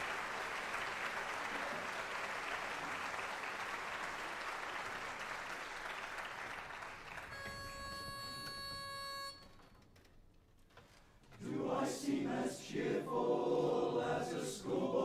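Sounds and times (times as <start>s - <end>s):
audience applauding: 0.0s - 8.1s
pitch pipe note: 7.3s - 9.5s.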